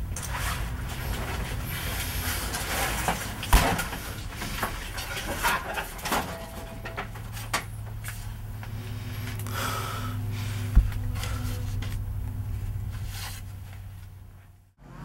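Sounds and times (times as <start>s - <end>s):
rustling: 0.0s - 14.7s.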